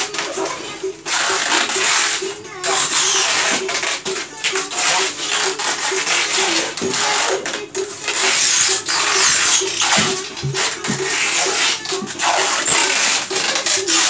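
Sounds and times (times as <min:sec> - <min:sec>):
packing tape scraping styrofoam: 0:00.0 - 0:14.0.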